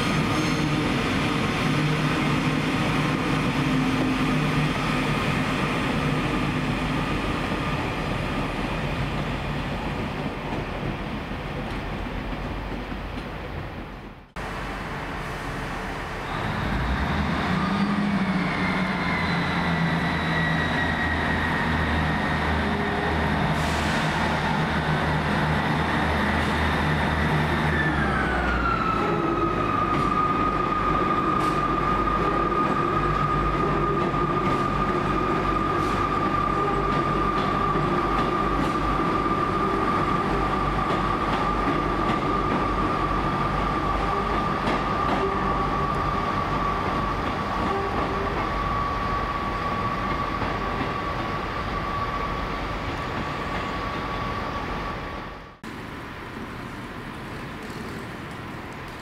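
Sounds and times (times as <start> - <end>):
another train passing: 0.0 - 59.0
diesel train engines humming: 14.0 - 59.0.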